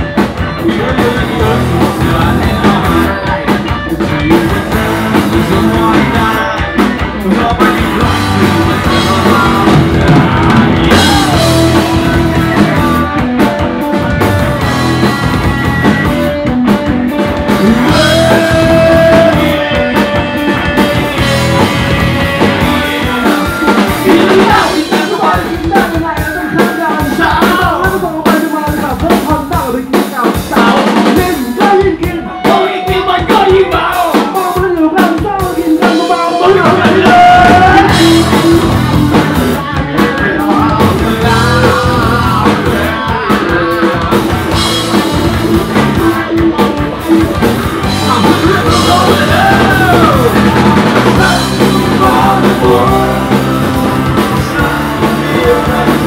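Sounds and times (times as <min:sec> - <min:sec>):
man singing into a microphone: 0:00.0 - 0:14.3, 0:17.5 - 0:46.4, 0:47.8 - 0:56.0
rock band playing live: 0:00.0 - 0:56.0.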